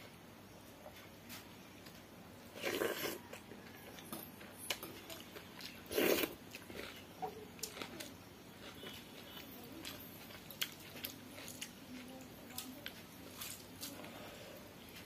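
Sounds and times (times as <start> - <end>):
person chewing food: 1.8 - 14.2.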